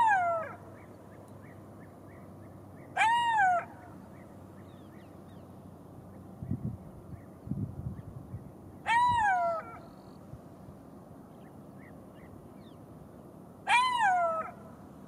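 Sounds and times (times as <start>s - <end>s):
jackal wailing cries: 13.7s - 14.6s.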